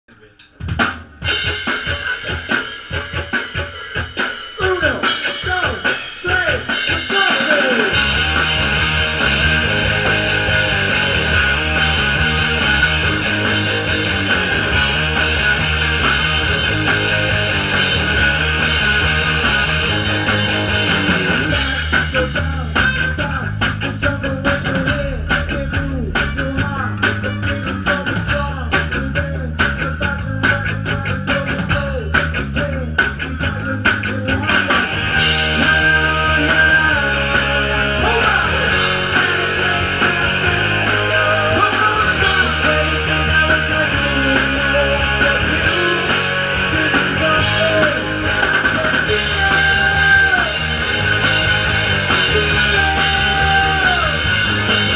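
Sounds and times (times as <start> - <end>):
live rock band playing: 0.2 - 54.9
person singing: 35.4 - 50.8, 52.1 - 54.9.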